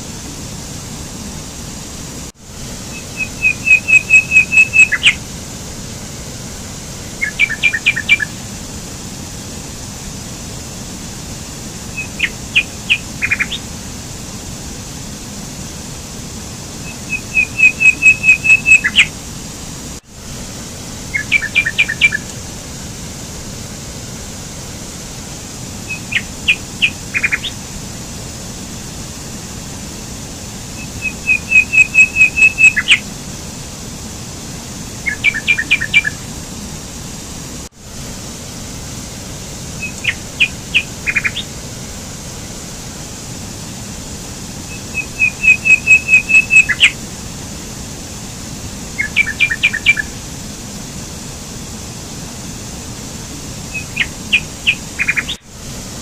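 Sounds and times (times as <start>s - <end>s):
songbird singing and chirping: 2.9s - 5.2s, 7.2s - 8.4s, 11.9s - 13.6s, 16.8s - 19.1s, 21.1s - 22.3s, 25.9s - 27.6s, 30.8s - 33.0s, 35.0s - 36.2s, 39.8s - 41.5s, 44.7s - 47.0s, 49.0s - 50.1s, 53.7s - 55.4s.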